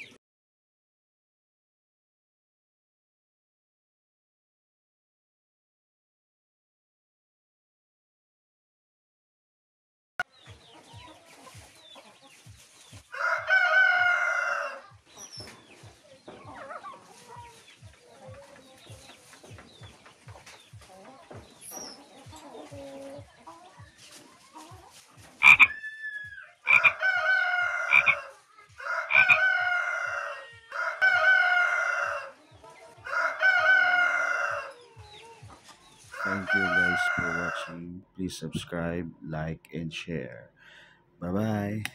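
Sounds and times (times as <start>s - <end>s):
roosters crowing: 13.0s - 15.0s, 25.4s - 35.4s, 36.0s - 38.0s.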